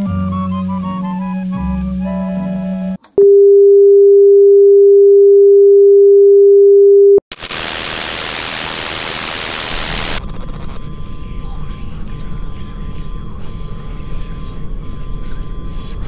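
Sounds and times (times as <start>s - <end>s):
tv static hiss: 7.3s - 16.0s.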